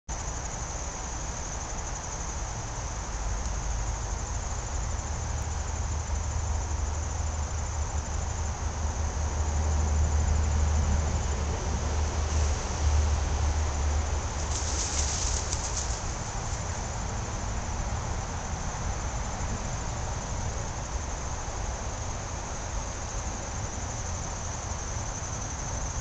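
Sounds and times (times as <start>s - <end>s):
insect chorus trilling: 0.1s - 26.0s.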